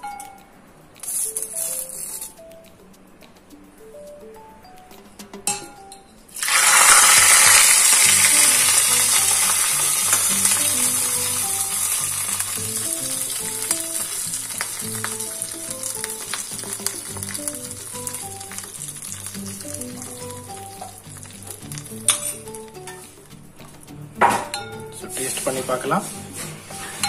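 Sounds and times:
oil crackles: 0:06.4 - 0:22.7
hot oil sizzling: 0:06.4 - 0:23.2, 0:24.5 - 0:27.0.

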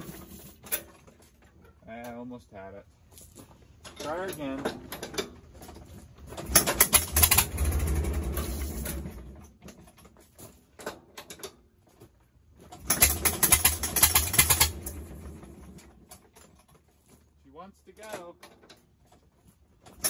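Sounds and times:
engine hand-cranked: 0:03.9 - 0:17.4.

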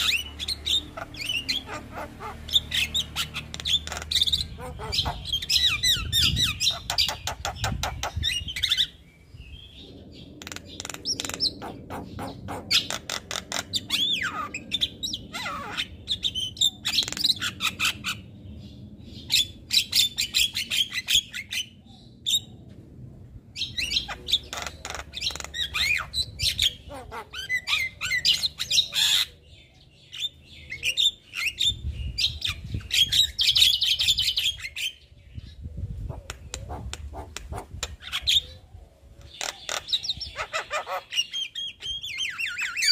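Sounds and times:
myna chattering and squawking: 0:00.0 - 0:08.9, 0:10.4 - 0:15.9, 0:23.8 - 0:29.4, 0:36.0 - 0:38.6, 0:39.2 - 0:42.9.

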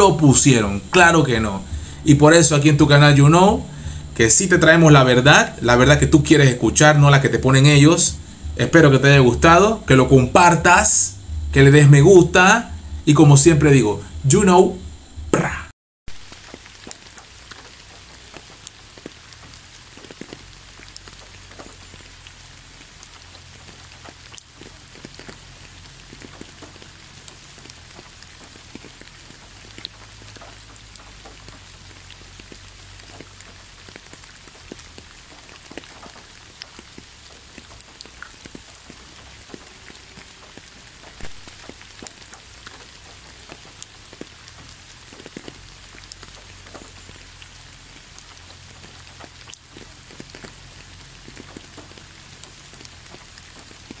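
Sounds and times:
drips ticking: 0:00.0 - 0:15.2
low hum: 0:00.0 - 0:16.4
rain hissing: 0:00.0 - 0:54.0.

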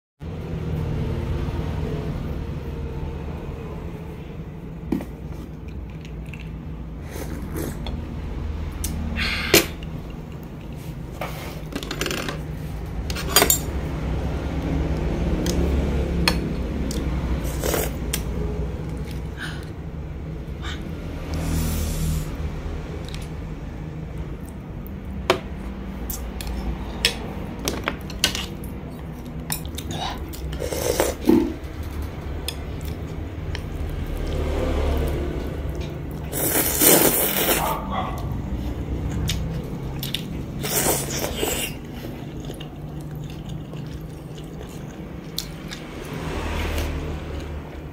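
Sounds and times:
utensils clinking on ceramic bowl: 0:13.1 - 0:13.8.

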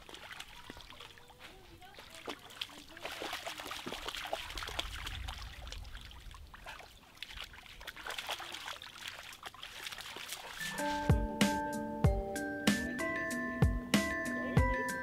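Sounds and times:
dog splashing through water: 0:00.0 - 0:11.4
trickling water: 0:00.0 - 0:12.0.

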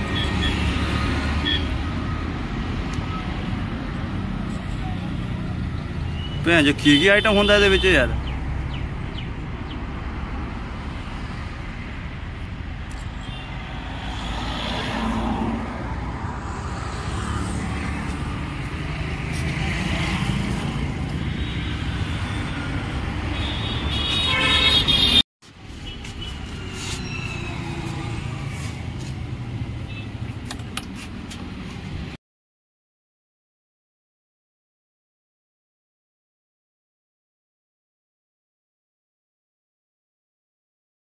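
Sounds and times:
road traffic rumbling: 0:00.0 - 0:32.2
vehicle horn honking: 0:23.3 - 0:25.2.

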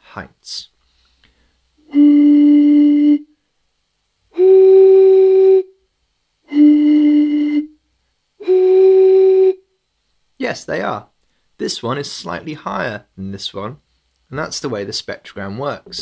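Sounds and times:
blowing across bottle mouths: 0:01.2 - 0:03.3, 0:06.5 - 0:07.8, 0:08.4 - 0:09.7.

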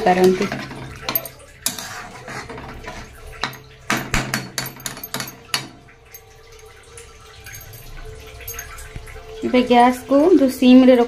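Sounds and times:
metal spatula scraping a pan: 0:00.0 - 0:03.6.

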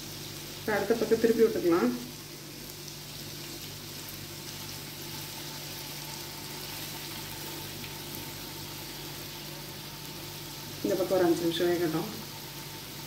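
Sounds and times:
chicken sizzling in hot oil: 0:00.0 - 0:13.0.

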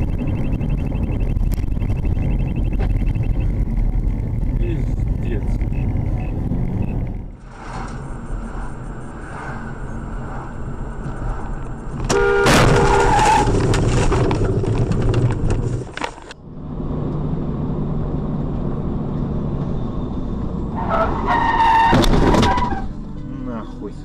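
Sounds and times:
low hum: 0:00.0 - 0:15.8
road and engine noise: 0:00.0 - 0:24.0
rough clattering noise: 0:07.0 - 0:16.4
car horn honk: 0:12.1 - 0:13.5.

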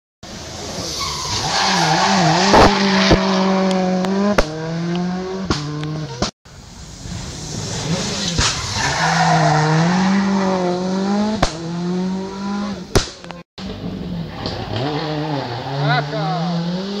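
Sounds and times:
rally car engine revving: 0:00.3 - 0:06.3, 0:07.4 - 0:17.0
sharp cracks: 0:08.2 - 0:08.8, 0:11.4 - 0:11.6, 0:12.9 - 0:13.4.

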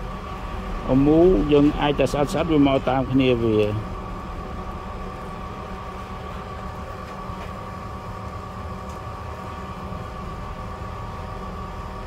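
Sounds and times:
mechanical hum with high whine: 0:00.0 - 0:12.0.

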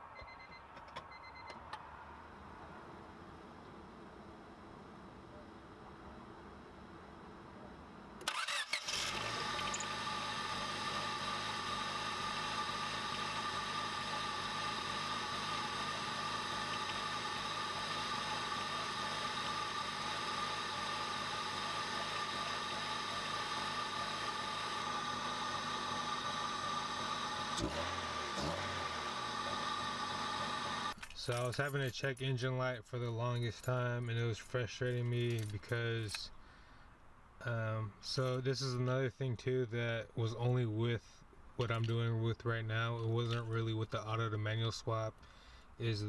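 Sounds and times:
car engine cranking and idling: 0:06.8 - 0:31.9.

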